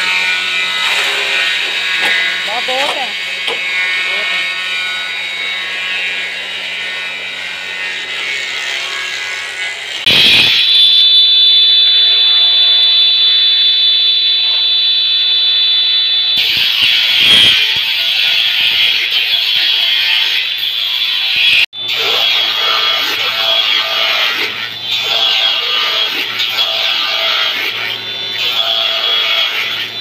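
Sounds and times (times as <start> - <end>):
saw cutting wood strips: 0.0 - 10.1, 16.4 - 30.0
circular saw whining: 0.0 - 30.0
machine hum: 10.0 - 17.6.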